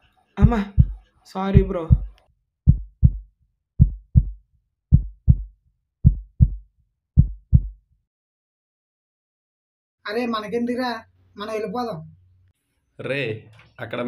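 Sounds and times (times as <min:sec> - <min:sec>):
heartbeat thumps: 0:00.4 - 0:06.6, 0:07.2 - 0:07.8.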